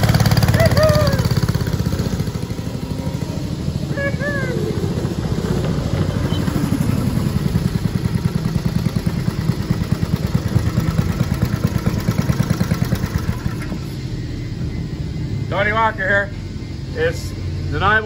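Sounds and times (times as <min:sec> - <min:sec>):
small gas engine running: 0:00.0 - 0:14.0.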